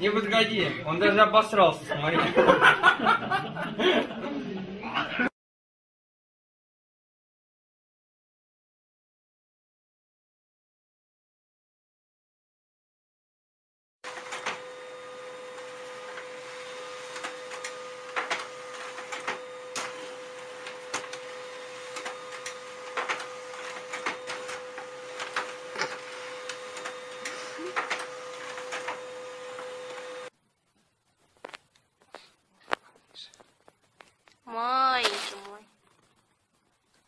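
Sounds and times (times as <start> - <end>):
printer clicking and clacking: 14.1 - 30.3
printer humming: 14.1 - 30.3.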